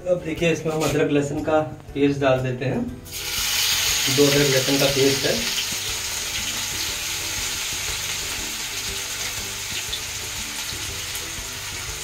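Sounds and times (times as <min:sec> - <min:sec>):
paste sizzling in hot oil: 0:03.1 - 0:12.0.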